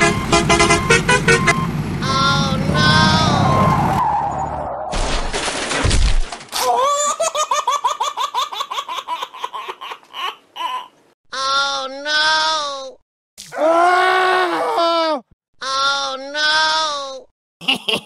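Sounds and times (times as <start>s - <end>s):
noisy crash: 4.2s - 6.5s
high-pitched giggling laugh: 6.6s - 11.0s, 17.6s - 18.0s.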